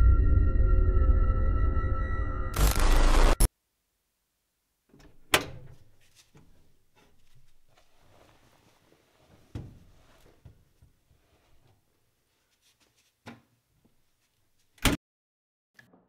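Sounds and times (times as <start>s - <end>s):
scuffs of someone moving: 7.2s - 10.4s, 12.2s - 13.2s.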